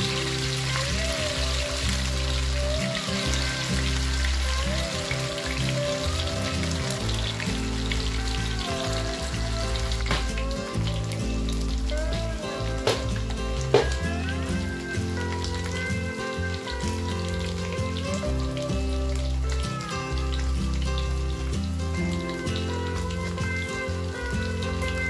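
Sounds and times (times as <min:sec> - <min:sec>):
background music: 0:00.0 - 0:25.0
fish sizzling in hot oil: 0:00.0 - 0:25.0.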